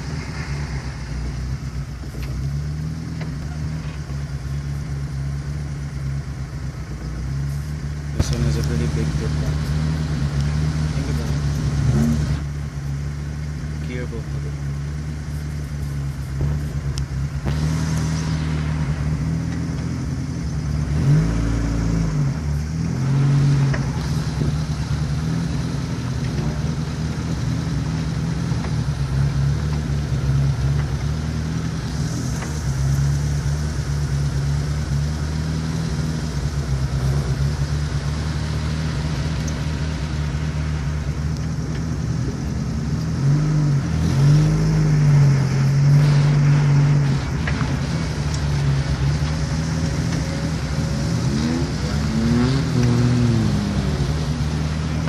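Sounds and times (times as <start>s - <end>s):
engine revving: 0.0s - 6.6s, 7.2s - 55.0s
car engine running at low speed: 0.0s - 55.0s.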